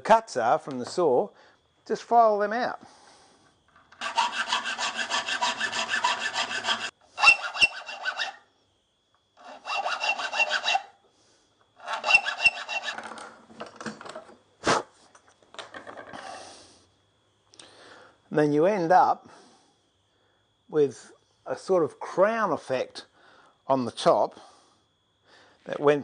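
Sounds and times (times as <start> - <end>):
file rasping on steel: 4.0 - 8.5, 9.4 - 11.0, 11.8 - 13.2.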